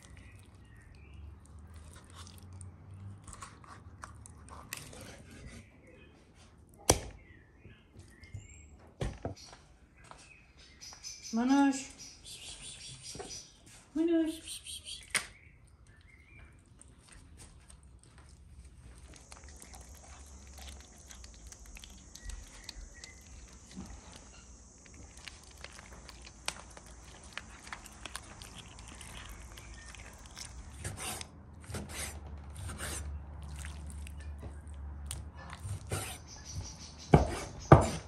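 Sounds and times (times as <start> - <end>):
kitten chewing raw chicken: 0.0 - 5.5, 15.6 - 36.6.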